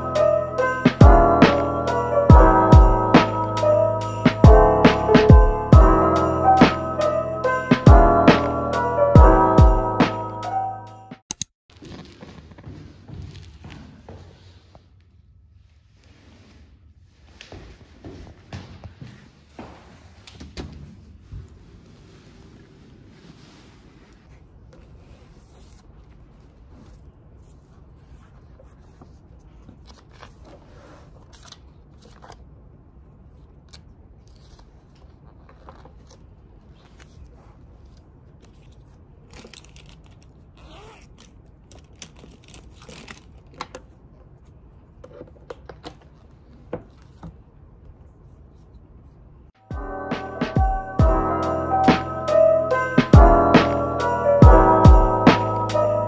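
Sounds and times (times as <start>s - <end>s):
paper rustling and page turns: 11.4s - 14.8s, 20.0s - 32.6s, 33.3s - 48.8s.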